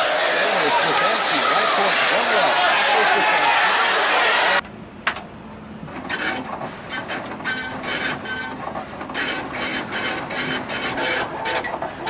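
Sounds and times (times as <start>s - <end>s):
printer printing in buzzing bursts: 5.9s - 12.0s.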